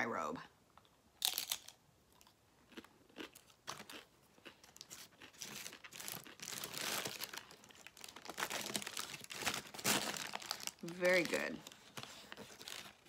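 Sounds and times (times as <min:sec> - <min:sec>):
crunching tortilla chip: 0:01.2 - 0:11.3
food wrapper crinkling: 0:01.2 - 0:13.0.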